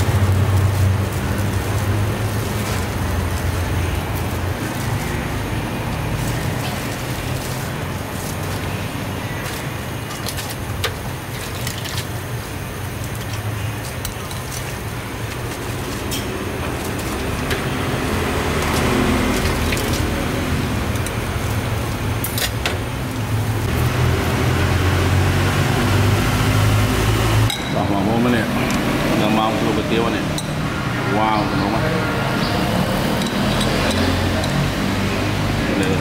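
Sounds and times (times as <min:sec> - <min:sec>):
road traffic rumble: 0:00.0 - 0:36.0.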